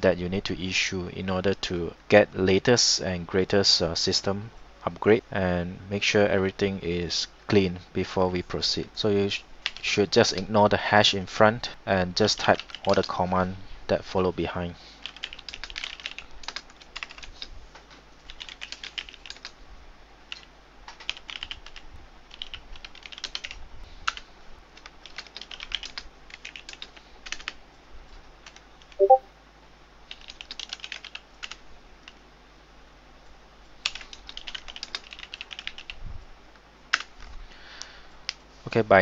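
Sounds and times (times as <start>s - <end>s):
keyboard typing: 12.6s - 13.0s, 15.0s - 17.4s, 18.3s - 19.5s, 20.3s - 24.2s, 24.8s - 27.6s, 28.4s - 29.2s, 30.1s - 31.6s, 33.8s - 36.0s
pitched blip: 29.0s - 29.2s.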